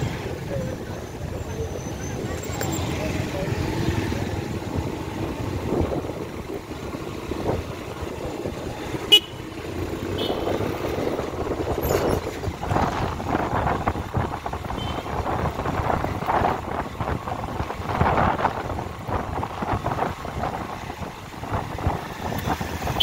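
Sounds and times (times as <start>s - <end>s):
road traffic noise: 0.0s - 23.0s
car horn toot: 9.1s - 9.4s, 10.2s - 10.6s, 14.8s - 15.1s.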